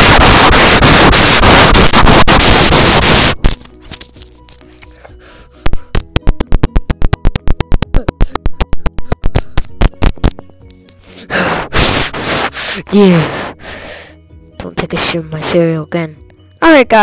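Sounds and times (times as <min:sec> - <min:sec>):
loud noisy blasts: 0:00.0 - 0:03.4, 0:11.5 - 0:12.6
quiet background music: 0:02.8 - 0:17.0.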